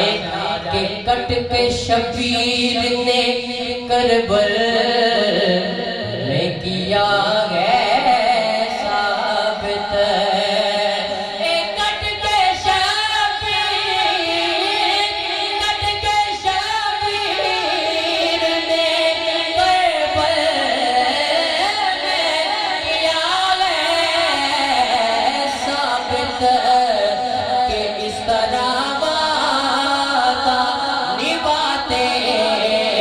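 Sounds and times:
man singing into a microphone: 0.0s - 33.0s.

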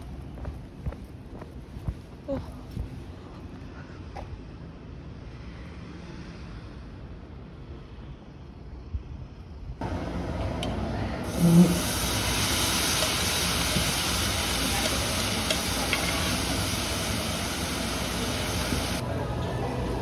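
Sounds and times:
food sizzling in a pan: 11.3s - 19.0s.

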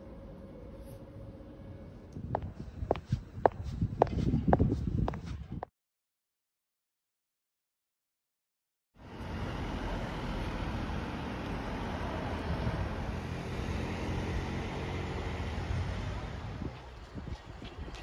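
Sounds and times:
cars passing on road: 9.0s - 18.0s.

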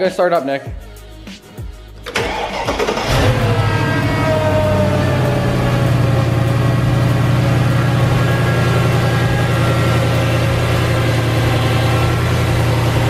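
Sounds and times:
car engine idling: 2.1s - 13.0s.

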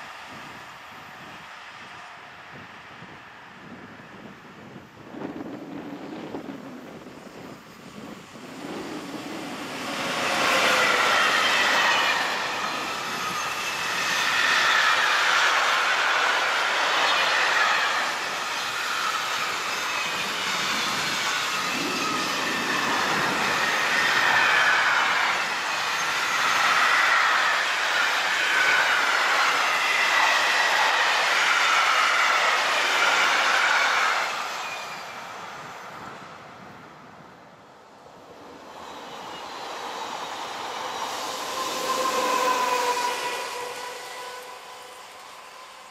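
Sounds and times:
freight train rolling past: 0.0s - 45.9s
wheels squealing: 8.5s - 35.3s, 38.8s - 45.9s.

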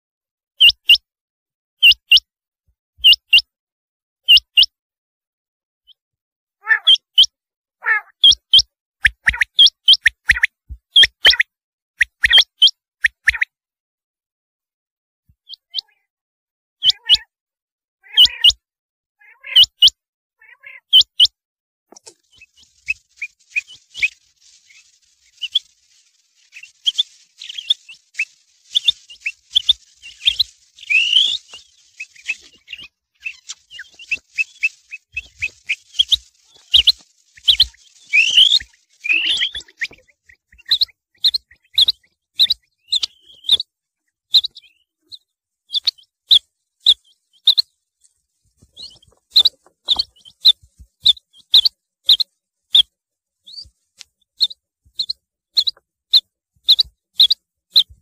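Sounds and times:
quail calling: 6.6s - 11.4s, 16.8s - 17.3s, 18.0s - 18.6s, 19.2s - 21.3s, 22.0s - 43.6s.

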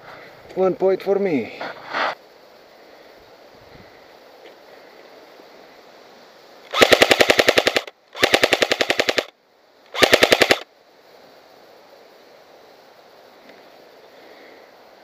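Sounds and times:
airsoft rifle automatic fire: 6.7s - 9.3s, 9.9s - 10.7s.

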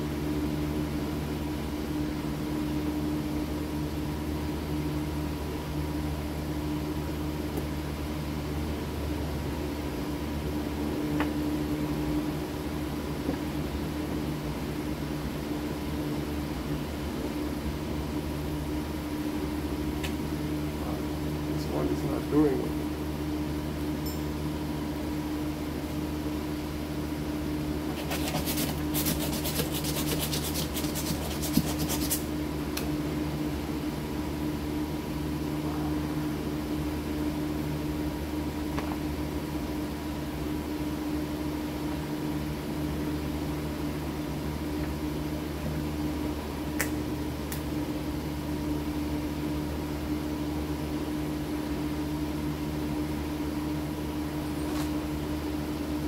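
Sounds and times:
mechanical hum: 0.0s - 56.0s
rapid scratchy clicking: 27.9s - 32.2s.

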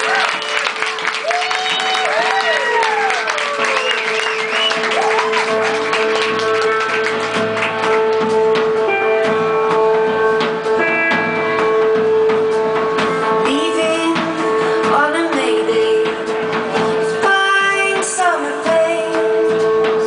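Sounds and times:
crowd whistling: 0.0s - 6.9s
drum kit: 0.0s - 20.0s
electric guitar: 0.0s - 20.0s.

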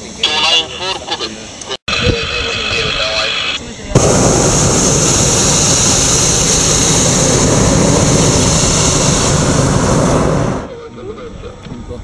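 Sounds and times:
propane burner blast: 2.0s - 10.8s.

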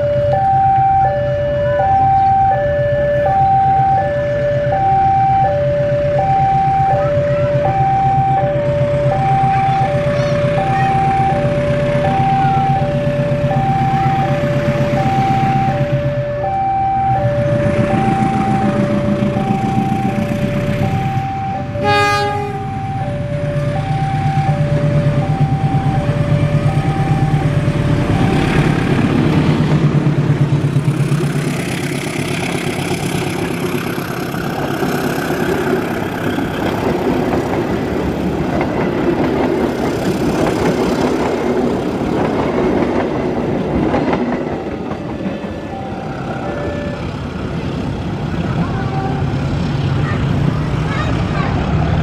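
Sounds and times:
two-tone warning signal: 0.0s - 29.0s, 44.7s - 47.8s
locomotive engine drone: 0.0s - 52.0s
train cars rumbling past: 0.0s - 52.0s
train horn blast: 21.7s - 22.9s, 48.7s - 49.4s.

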